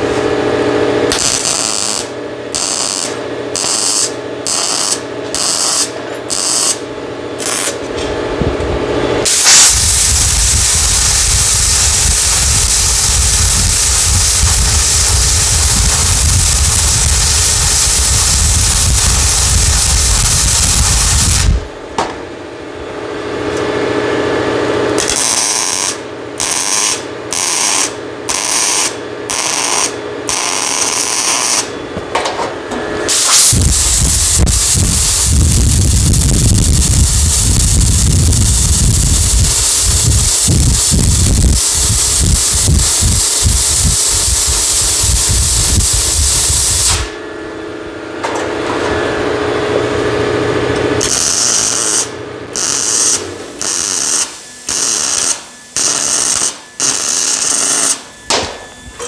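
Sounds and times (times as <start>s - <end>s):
welder crackling bursts: 1.1s - 6.8s, 7.4s - 7.8s, 9.2s - 21.7s, 25.0s - 31.7s, 33.1s - 47.2s, 50.9s - 58.4s
compressed air blast: 9.2s - 21.6s, 33.1s - 47.1s.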